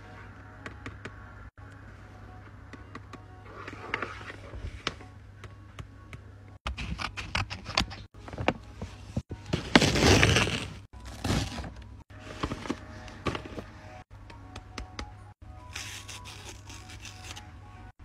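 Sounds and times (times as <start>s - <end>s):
paper bag tearing and crinkling: 9.6s - 11.7s.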